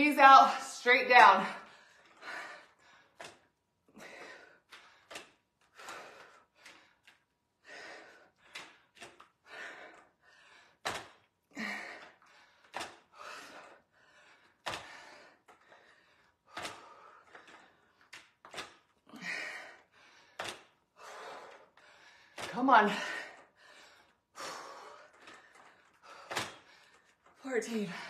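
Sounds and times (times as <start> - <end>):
woman breathing hard: 1.4 - 28.0
dumbbells clunking: 14.6 - 21.6, 24.4 - 28.0.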